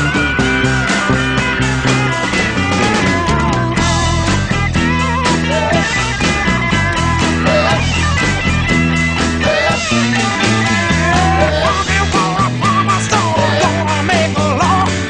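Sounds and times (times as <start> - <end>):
drum beat: 0.0 - 14.9
bass line: 0.0 - 15.0
electric guitars: 0.0 - 15.0
wavering lead guitar line: 0.0 - 15.0.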